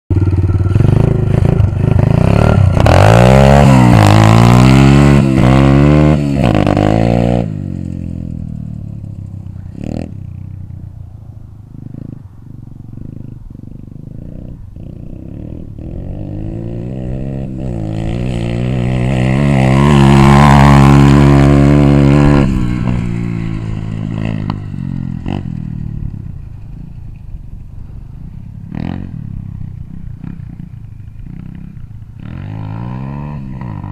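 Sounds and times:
pit bike engine revving: 0.1s - 10.9s, 11.7s - 27.0s.

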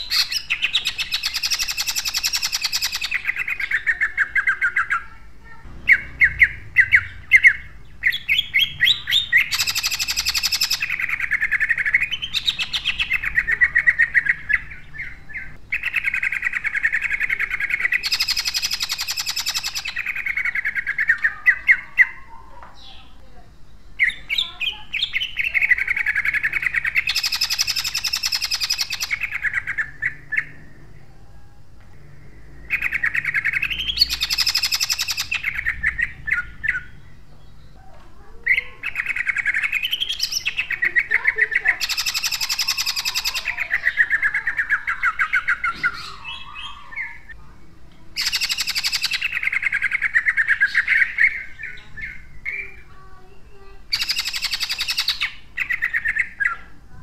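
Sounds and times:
bird singing rattling trills: 0.0s - 31.5s, 32.1s - 57.0s.

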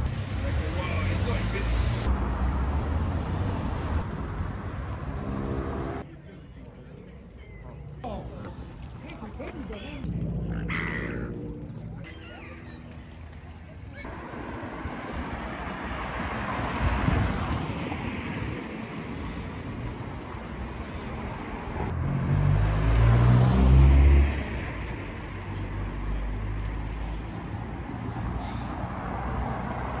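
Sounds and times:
car passing: 0.0s - 6.0s, 14.0s - 30.0s
vehicle with low engine passing: 0.0s - 6.1s, 9.2s - 30.0s.

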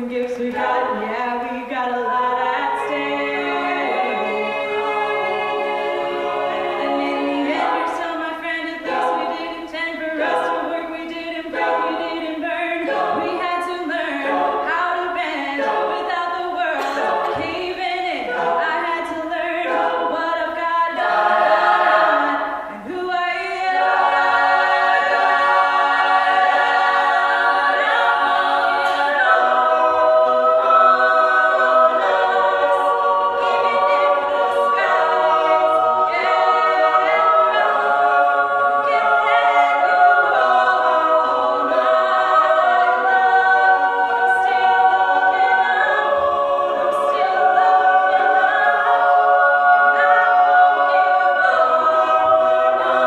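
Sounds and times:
backing voices singing chords: 0.0s - 53.0s
female soloist singing: 6.8s - 21.1s.

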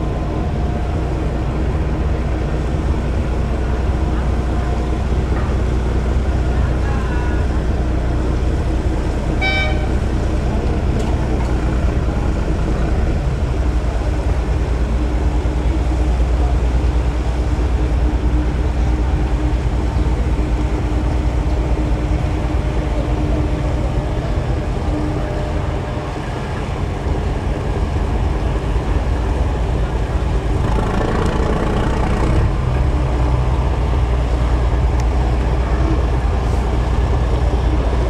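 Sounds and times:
engine rumbling: 0.0s - 38.0s
short horn toot: 9.4s - 10.0s.

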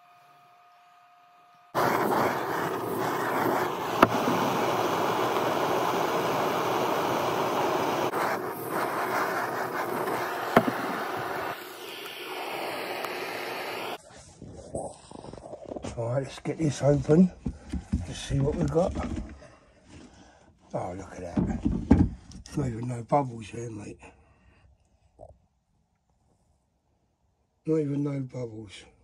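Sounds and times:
steady rushing noise: 1.8s - 14.0s.

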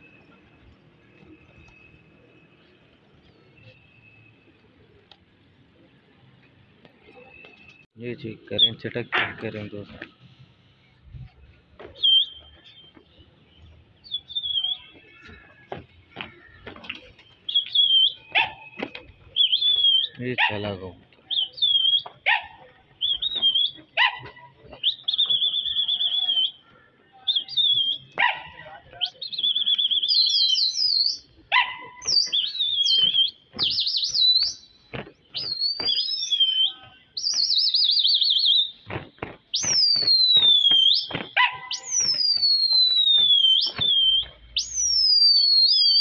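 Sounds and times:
high whistles and chirps: 10.8s - 15.4s, 17.2s - 20.2s, 21.3s - 22.2s, 23.0s - 23.9s, 24.7s - 26.6s, 27.2s - 28.2s, 28.9s - 38.9s, 39.5s - 46.0s.

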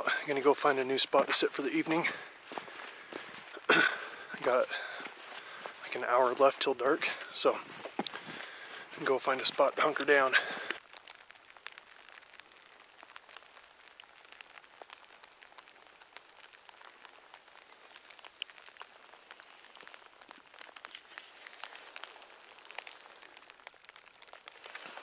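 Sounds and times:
faint ticks of raindrops: 0.0s - 25.0s
light rain hiss: 0.0s - 25.0s.

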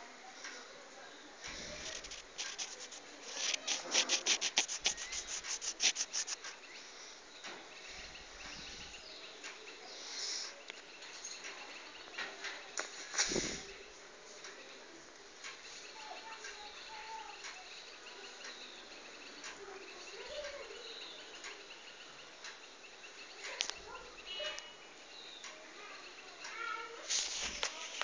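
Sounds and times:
cat licking its paw: 1.5s - 6.6s.

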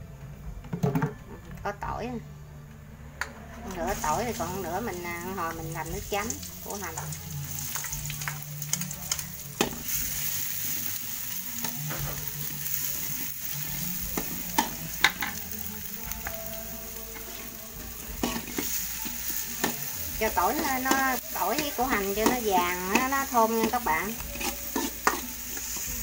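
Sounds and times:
garlic sizzling in hot oil: 3.7s - 26.0s
metal spatula scraping a wok: 16.2s - 26.0s.

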